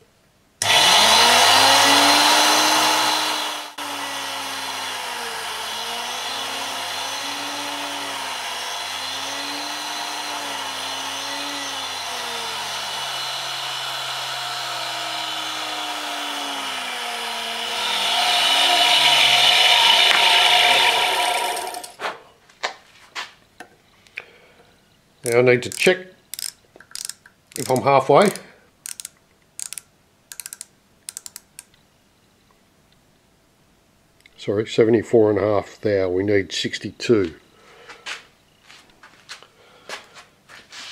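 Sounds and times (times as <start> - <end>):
grinder running hum: 0.6 - 22.0, 26.4 - 31.6
grinding wheel grinding metal: 0.6 - 22.0.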